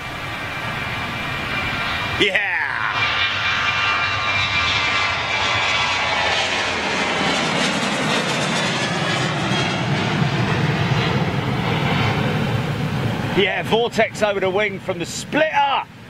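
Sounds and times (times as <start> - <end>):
high jet whine: 0.0 - 16.0
jet engine roar: 0.0 - 16.0.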